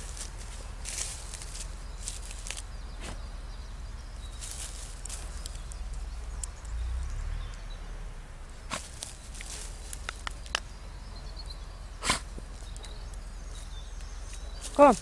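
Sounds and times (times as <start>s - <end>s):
dog digging in soil and leaves: 0.0s - 3.3s, 4.2s - 6.4s, 8.6s - 10.7s, 12.0s - 15.0s.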